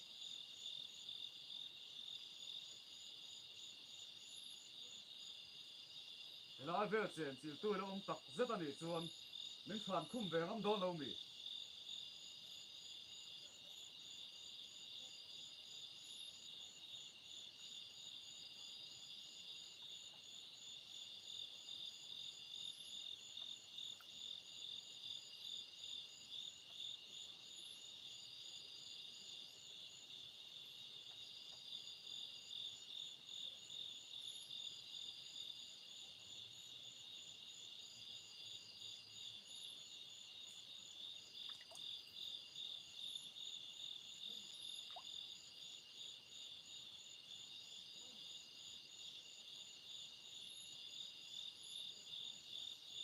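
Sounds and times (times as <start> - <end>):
crickets pulsing trill: 0.0 - 30.2.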